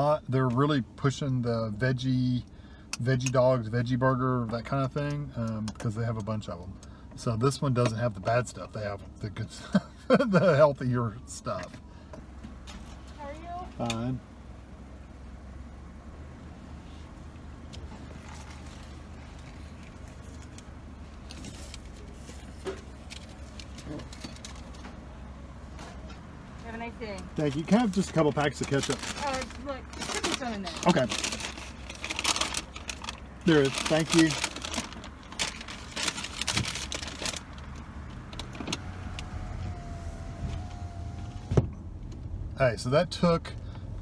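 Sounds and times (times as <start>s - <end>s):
car engine idling: 0.0s - 44.0s
electric window motor whining: 38.3s - 41.8s.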